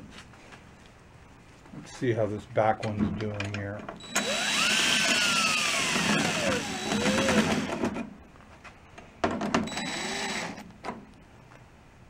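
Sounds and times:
small power tool motor: 0:04.0 - 0:07.8, 0:09.7 - 0:10.6.

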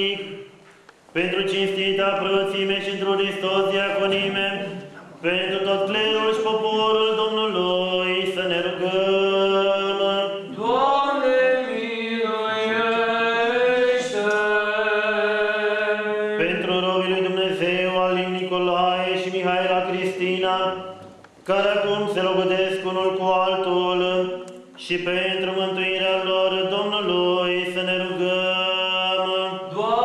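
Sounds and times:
sung liturgical chant: 0:00.0 - 0:00.6, 0:01.2 - 0:30.0.

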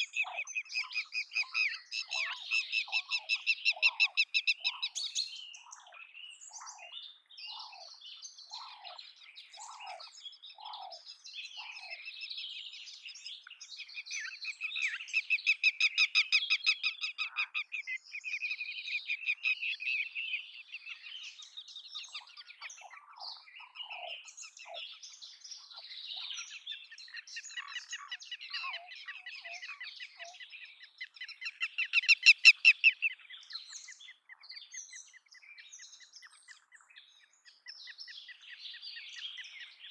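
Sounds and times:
lapwing calling: 0:00.0 - 0:12.2, 0:14.2 - 0:21.0, 0:27.1 - 0:33.2.

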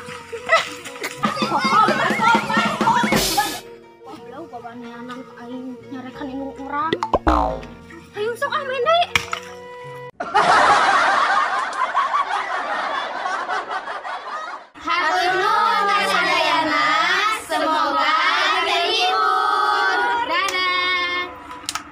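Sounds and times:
women and children chanting: 0:14.8 - 0:21.2.

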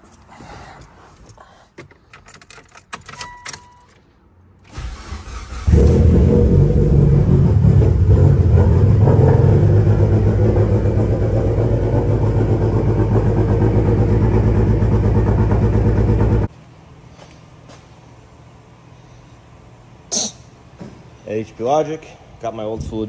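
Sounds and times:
car engine running loud: 0:05.6 - 0:16.5.

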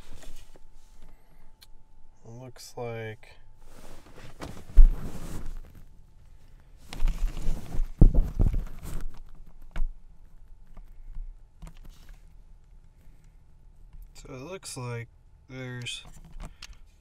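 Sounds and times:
camera handling rustle and knocks: 0:06.9 - 0:10.0, 0:16.0 - 0:16.8.

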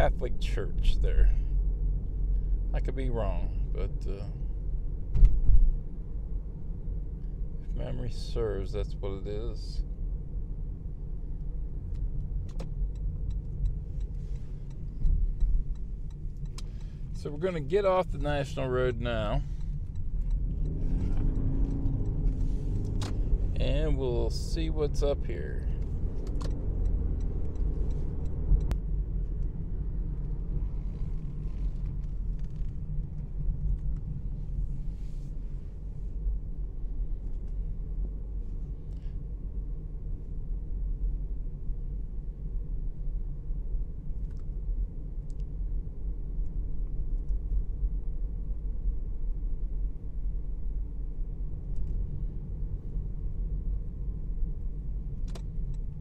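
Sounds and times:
car tyre and engine rumble: 0:00.0 - 0:56.0
sharp click: 0:55.2 - 0:55.8.

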